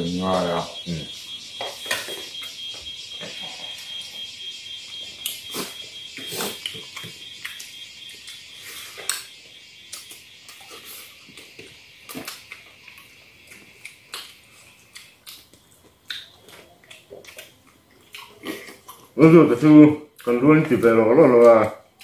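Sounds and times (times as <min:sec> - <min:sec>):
smacking and chewing: 0:12.1 - 0:19.2.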